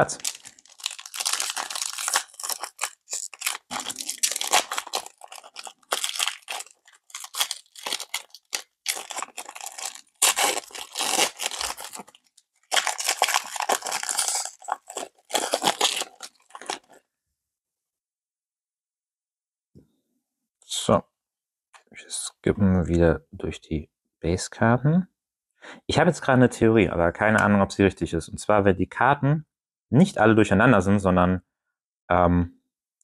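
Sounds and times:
plastic wrapper tearing and crinkling: 0.0s - 17.0s.

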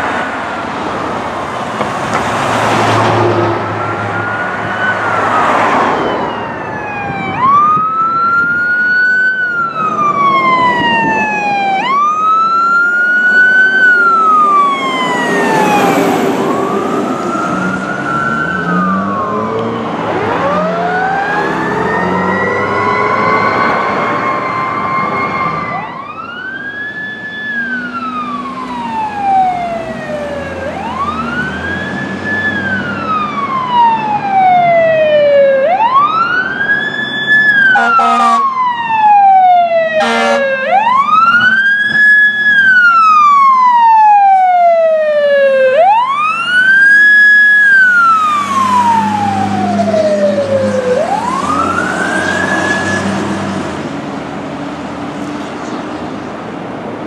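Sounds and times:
fire engine siren wailing: 0.0s - 57.0s
air horn blasts: 37.7s - 38.5s, 40.0s - 40.6s.

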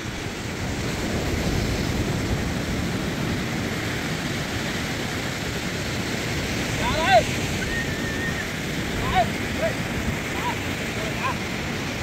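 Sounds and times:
sea surf on a sandy beach: 0.0s - 12.0s
wind rumbling on microphone: 0.0s - 12.0s.

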